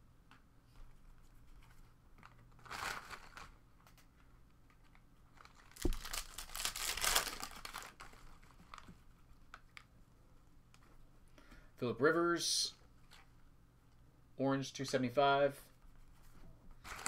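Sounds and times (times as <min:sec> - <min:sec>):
foil wrapper crinkling and tearing: 0:05.3 - 0:08.9.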